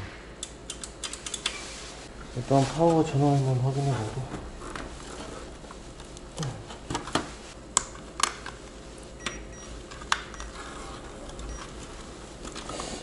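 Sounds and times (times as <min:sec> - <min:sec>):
sharp plastic clicks: 0:00.4 - 0:01.6.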